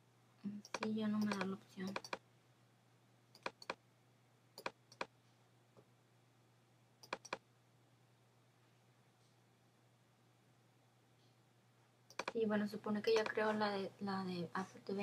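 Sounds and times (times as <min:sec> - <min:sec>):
faint low hum: 0:00.0 - 0:15.0
computer mouse clicks: 0:00.5 - 0:02.2, 0:03.3 - 0:03.8, 0:04.6 - 0:05.1, 0:07.0 - 0:07.4, 0:12.1 - 0:12.4, 0:13.1 - 0:13.4.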